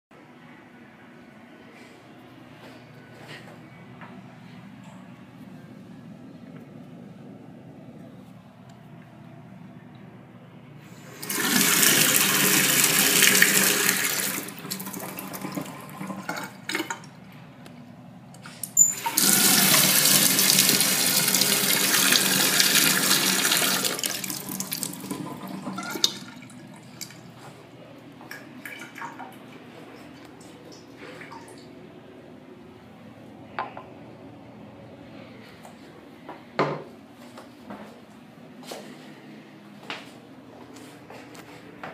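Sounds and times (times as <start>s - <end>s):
faucet running into steel sink: 11.1s - 17.1s, 18.8s - 27.2s.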